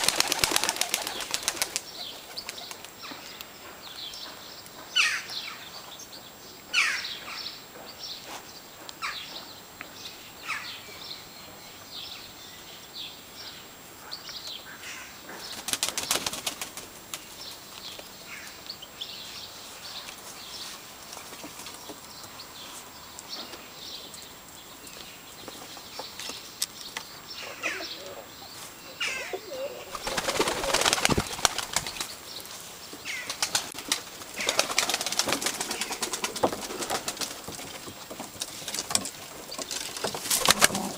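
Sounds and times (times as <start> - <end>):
pigeon wings flapping: 0.0 - 3.0, 15.6 - 17.3, 29.9 - 32.2, 33.1 - 40.9.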